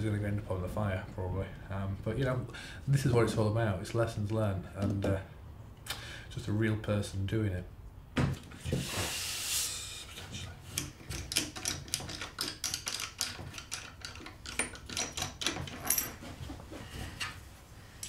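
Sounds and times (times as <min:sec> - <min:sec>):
board sliding with scrape: 0:08.7 - 0:09.4.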